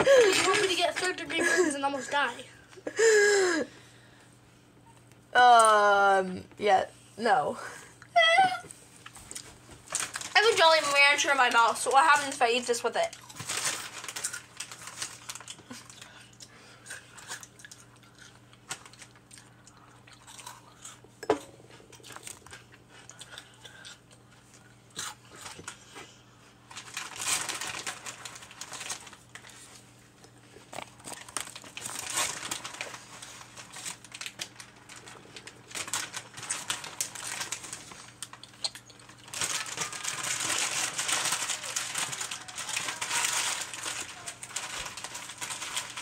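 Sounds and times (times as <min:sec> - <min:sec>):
plastic wrapping crinkling: 0:00.0 - 0:02.8, 0:09.0 - 0:19.6, 0:26.6 - 0:46.0.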